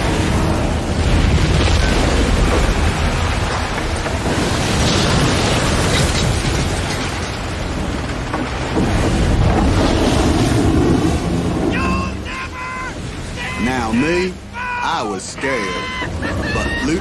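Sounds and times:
deep rumble: 0.0 - 12.2
crashing waves: 0.0 - 17.0
rain: 0.0 - 17.0
storm wind: 0.0 - 17.0.

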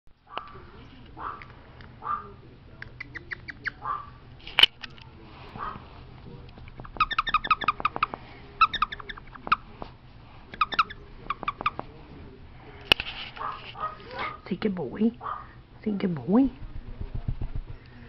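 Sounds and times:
dog toy squeaking: 6.9 - 7.9.

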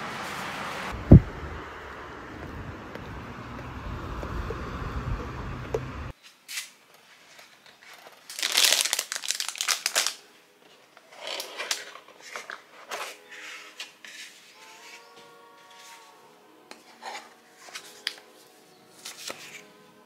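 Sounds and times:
wind and street noise: 0.0 - 6.2
wrapping paper crinkling: 7.2 - 10.4.

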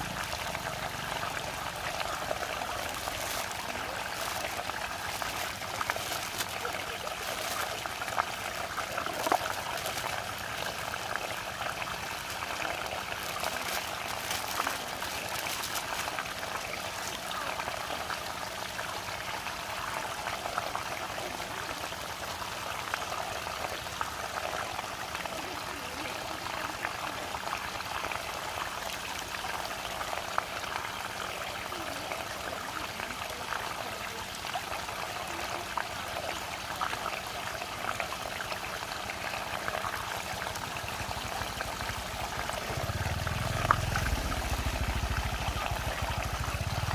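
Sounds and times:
water rushing down vortex: 0.0 - 46.9
plastic packaging crackling: 2.5 - 8.1, 9.0 - 10.3, 13.1 - 17.1.

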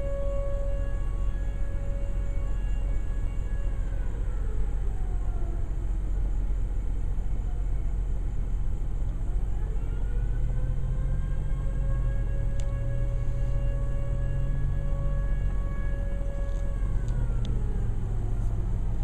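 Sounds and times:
distant fire siren wailing: 0.0 - 19.0
steady low rumble: 0.0 - 19.0.

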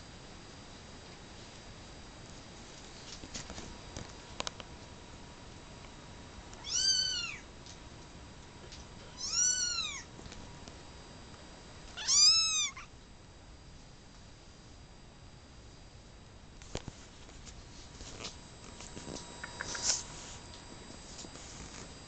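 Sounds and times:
kitten meowing: 6.6 - 7.4, 9.1 - 10.1, 12.0 - 12.9.

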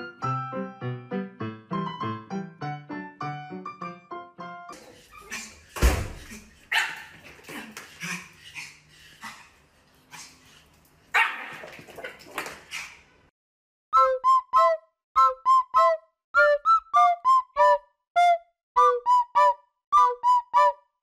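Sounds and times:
puppy yapping: 5.0 - 8.7, 11.1 - 13.0.

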